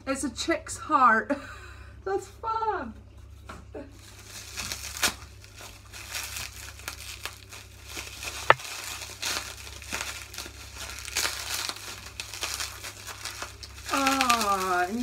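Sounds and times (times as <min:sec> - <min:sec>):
packaging crinkling and rustling: 0:04.0 - 0:15.0.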